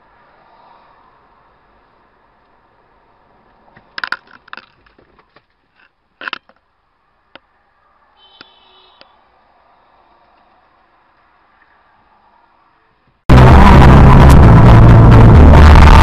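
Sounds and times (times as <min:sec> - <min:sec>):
vehicle collision crashes: 0:13.3 - 0:16.0.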